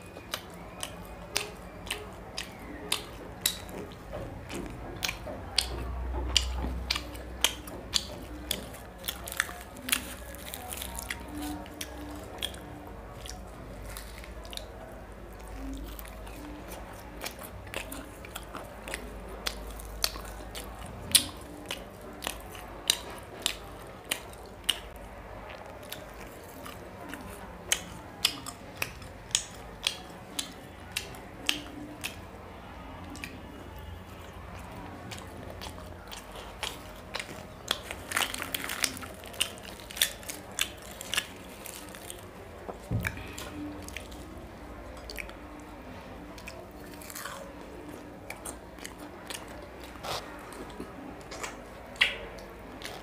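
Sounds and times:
chewing and wet mouth smacking: 0.0 - 53.0
bread tearing crackle: 36.7 - 42.4.

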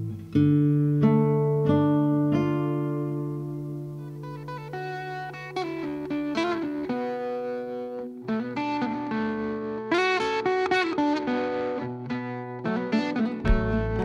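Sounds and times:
guitar plucked melody: 0.0 - 14.0.

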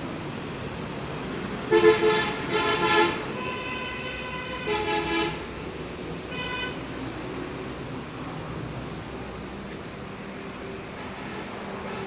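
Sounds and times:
background traffic noise: 0.0 - 12.0
vehicle horns honking: 1.7 - 5.4, 6.3 - 6.8.

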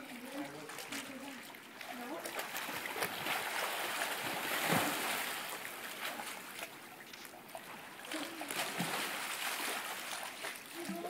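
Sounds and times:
pool water splashing: 0.0 - 11.0.

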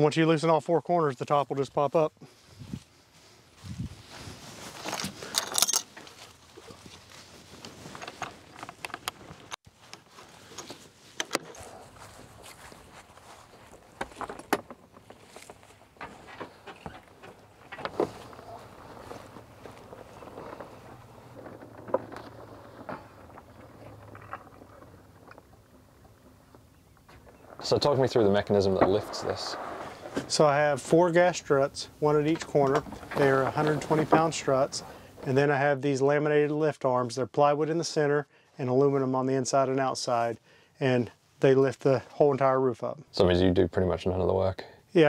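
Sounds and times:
metal latches clicking and rattling: 4.9 - 6.0.

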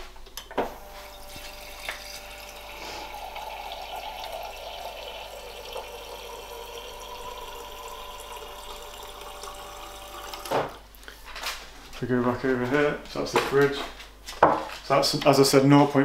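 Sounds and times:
water streaming into a glass: 0.7 - 10.8.

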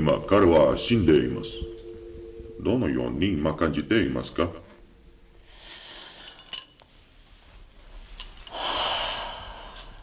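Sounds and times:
person exhaling: 5.4 - 6.6, 8.5 - 10.0.

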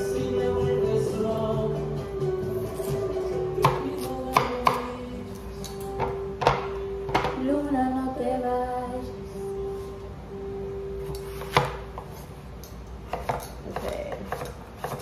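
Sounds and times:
music with singing: 0.0 - 11.3
knife cutting on a board: 13.1 - 15.0.

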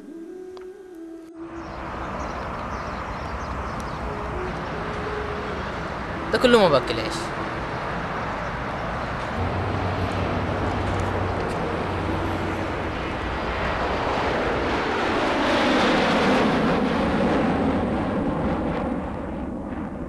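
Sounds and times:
rushing roar: 4.0 - 18.5.

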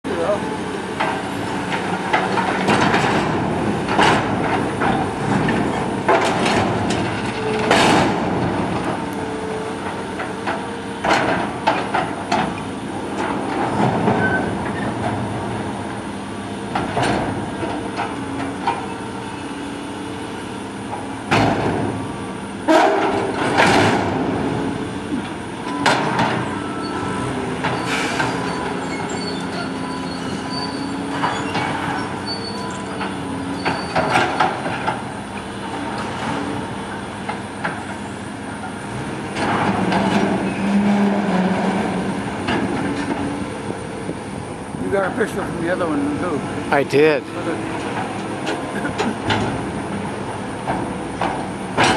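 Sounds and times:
diesel engine running: 0.0 - 51.9
metal squealing: 26.4 - 34.6, 39.8 - 43.2.

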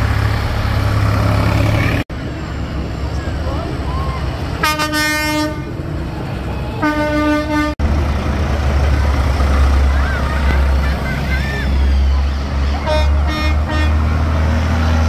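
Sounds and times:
tractor diesel engine rumbling: 0.0 - 15.0
horn toots: 4.6 - 5.8, 6.8 - 7.8, 11.6 - 14.3.

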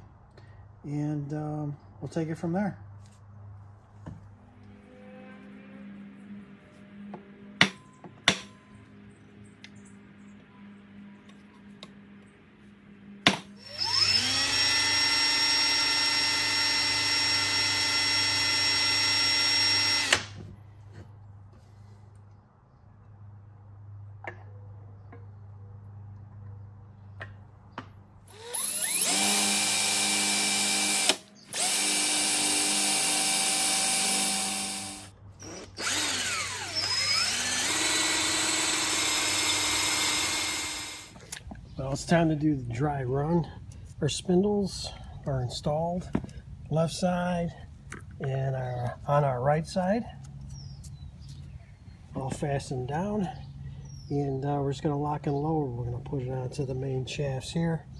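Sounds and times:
electric drill whining: 13.6 - 20.4, 28.3 - 41.2.

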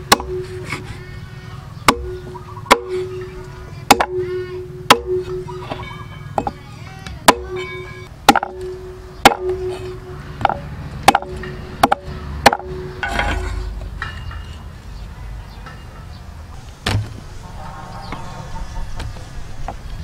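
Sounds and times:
cleaver chopping on wooden board: 1.9 - 3.1, 8.3 - 13.2.

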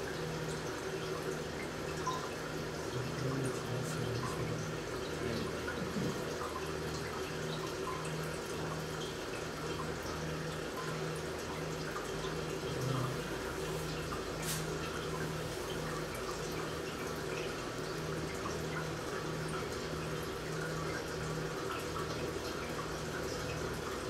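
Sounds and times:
liquid dripping into glass jar: 1.9 - 3.2.

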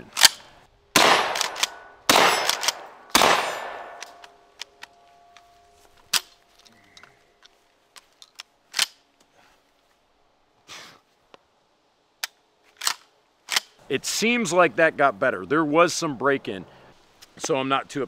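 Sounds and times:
shotgun shots echoing: 1.0 - 4.2
shotgun pump action clacking: 1.0 - 4.3.

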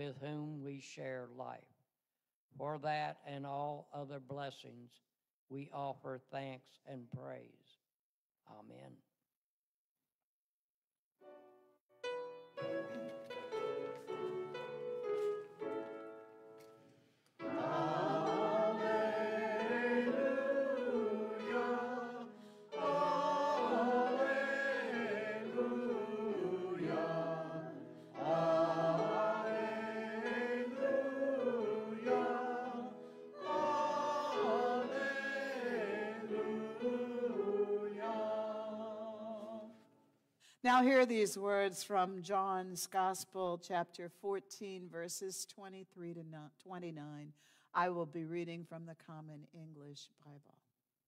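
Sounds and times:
church choir singing: 17.4 - 39.8.

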